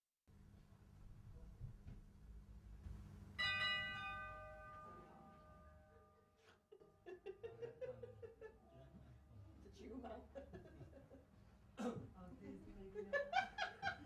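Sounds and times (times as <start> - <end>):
bell-like chime ringing: 3.4 - 6.4.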